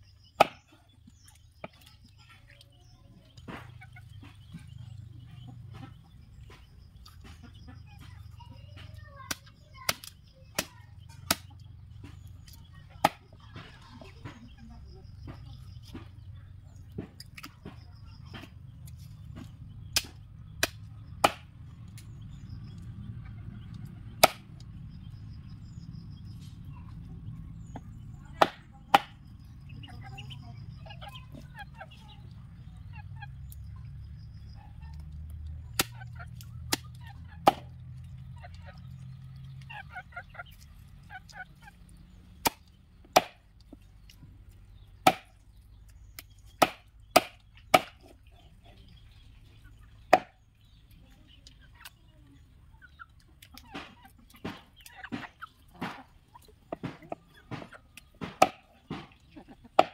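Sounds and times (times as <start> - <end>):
poultry calls: 38.1 - 42.6, 48.3 - 59.9
knife chopping on wooden board: 42.4 - 43.4, 45.0 - 45.3, 50.1 - 50.4, 56.7 - 59.1.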